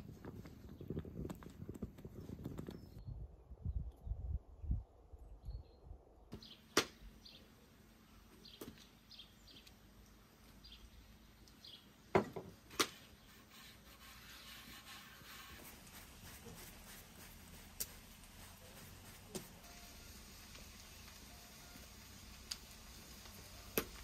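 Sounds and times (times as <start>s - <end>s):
small birds chirping: 0.0s - 3.2s, 5.3s - 12.1s
hands rustling flour on board: 13.0s - 19.6s.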